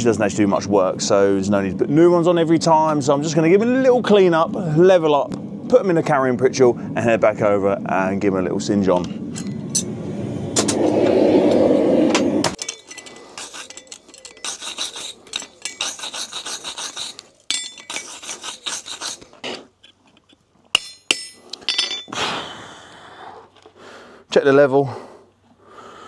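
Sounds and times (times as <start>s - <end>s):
loud rushing noise: 9.8s - 12.6s
sharp metal clinks: 12.6s - 16.1s, 17.5s - 18.1s, 20.7s - 22.2s
scraping horseshoe on anvil: 12.6s - 22.1s.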